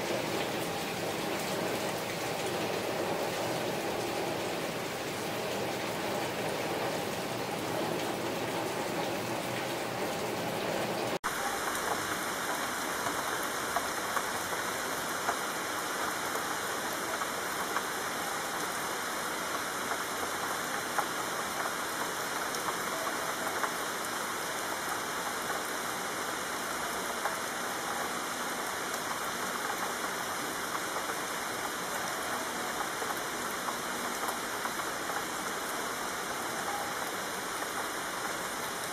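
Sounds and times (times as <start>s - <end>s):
steady rain hiss: 0.0s - 38.9s
rain drop ticks: 11.4s - 25.9s, 26.7s - 38.9s.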